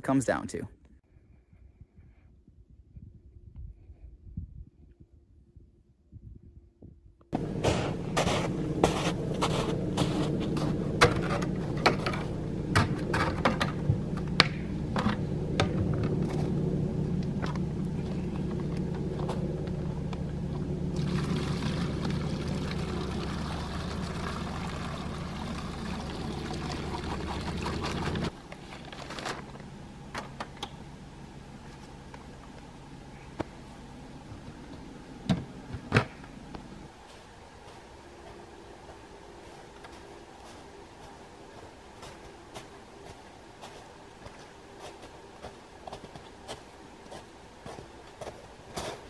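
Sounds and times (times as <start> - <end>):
steady low hum: 0.0 - 49.0
sap pouring into a bucket: 21.0 - 28.3.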